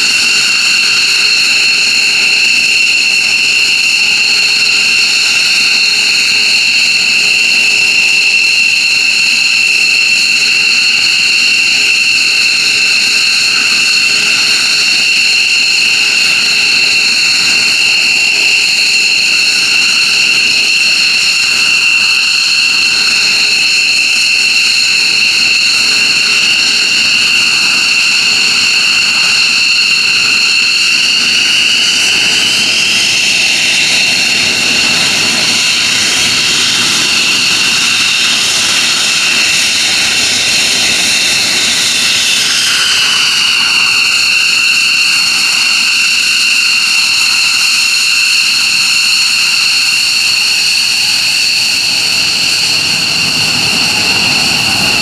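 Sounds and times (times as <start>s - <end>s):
jet engines high-pitched whine: 0.0s - 55.0s.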